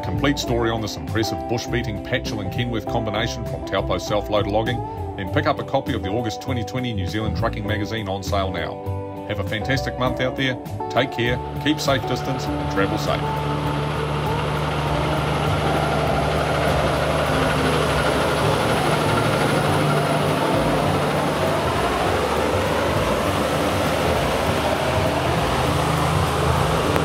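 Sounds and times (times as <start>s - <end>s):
truck diesel engine: 10.0s - 27.0s
tyres hissing on wet road: 11.9s - 27.0s.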